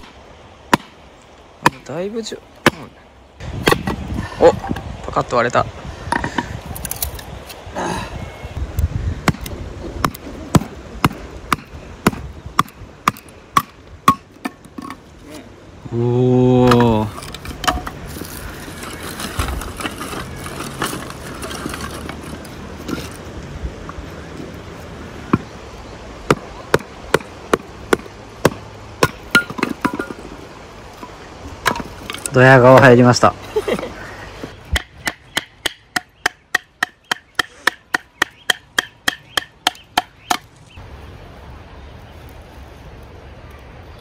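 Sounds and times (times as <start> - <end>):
blade knocking through firewood: 9.2 - 15.0, 26.2 - 30.3
wooden sticks knocking on stone: 16.6 - 18.0, 26.3 - 30.3, 34.7 - 40.5.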